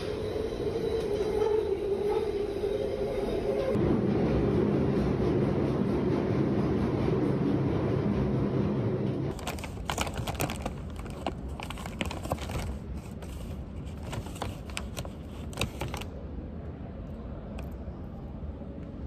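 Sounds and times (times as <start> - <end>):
underground train carriage rumble: 0.0 - 19.0
paper bag rustling: 9.3 - 16.1.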